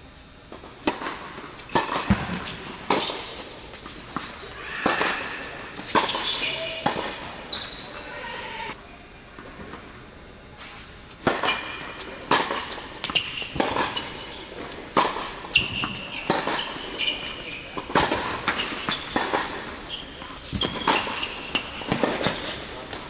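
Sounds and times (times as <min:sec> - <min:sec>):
tennis ball bouncing: 0:00.8 - 0:07.3, 0:11.2 - 0:23.0
tennis racket striking ball: 0:00.8 - 0:07.3, 0:11.2 - 0:23.0.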